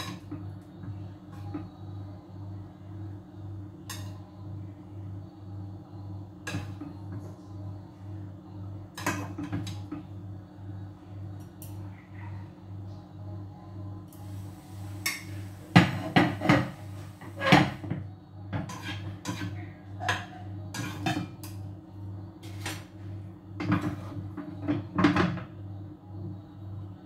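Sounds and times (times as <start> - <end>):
steady low hum: 0.0 - 27.0
dishes and utensils clattering: 15.1 - 18.0, 18.6 - 21.4.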